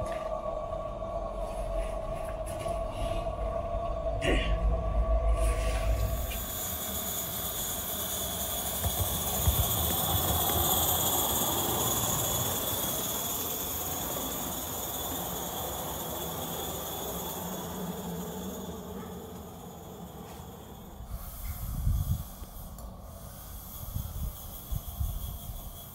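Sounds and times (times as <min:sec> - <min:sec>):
steam hissing from model locomotive: 0:05.0 - 0:25.9.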